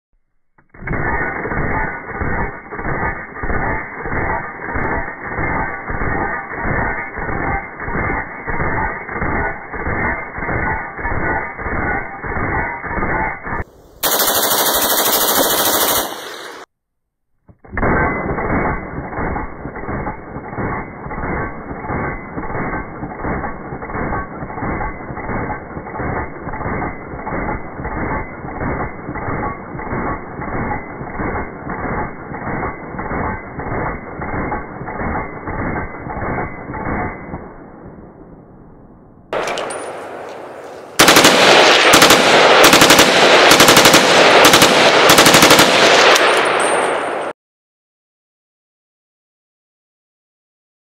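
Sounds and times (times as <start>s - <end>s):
rifle firing shots: 14.0s - 16.7s, 39.3s - 47.3s.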